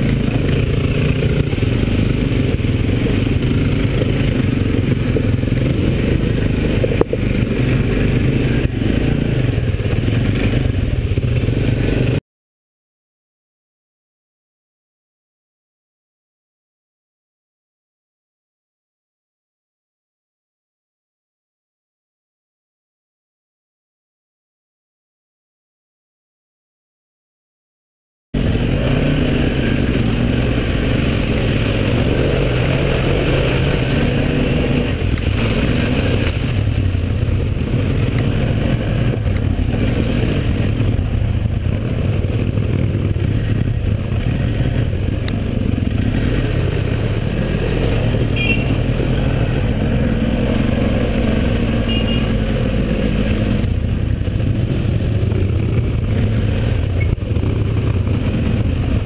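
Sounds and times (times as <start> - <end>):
quad bike engine running: 0.0 - 12.2, 28.4 - 59.0.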